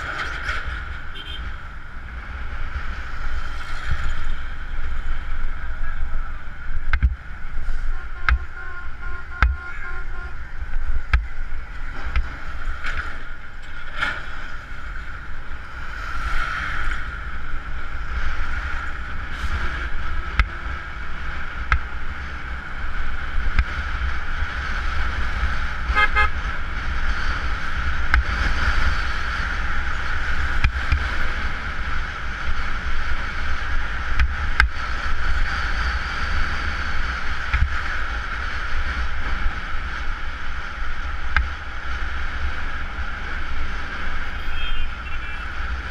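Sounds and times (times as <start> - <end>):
motorcycle engine and road noise: 0.0 - 45.9
wind rumble on microphone: 0.0 - 45.9
short horn toot: 7.9 - 10.4, 44.4 - 45.5.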